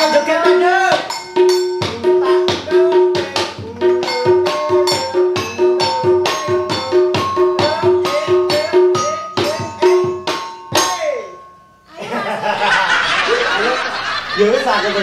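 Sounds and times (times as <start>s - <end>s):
hand drum beaten with stick: 0.0s - 11.4s
people laughing: 11.9s - 15.0s.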